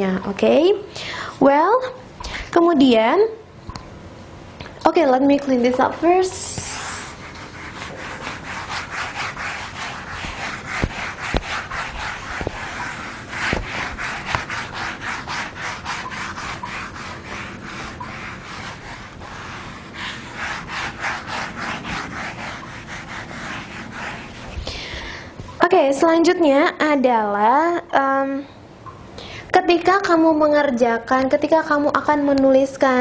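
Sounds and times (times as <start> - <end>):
eraser rubbing on whiteboard: 6.2 - 25.0.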